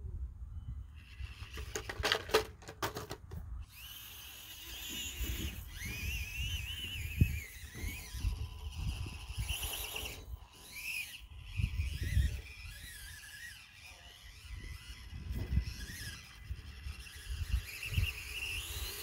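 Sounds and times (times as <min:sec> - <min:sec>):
small electric motor whining: 0:00.6 - 0:19.0.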